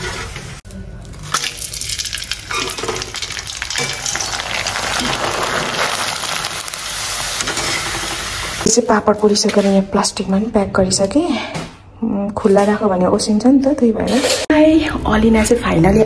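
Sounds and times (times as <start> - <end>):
frying in hot oil crackling: 0.0 - 9.0.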